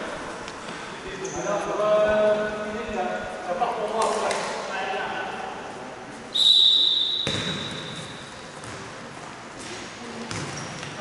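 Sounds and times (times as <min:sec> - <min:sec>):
referee's whistle blast: 0:06.3 - 0:08.1.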